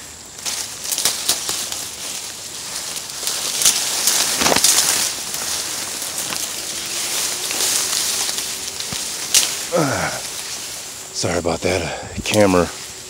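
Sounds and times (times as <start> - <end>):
dry grass rustling underfoot: 0.0 - 13.0.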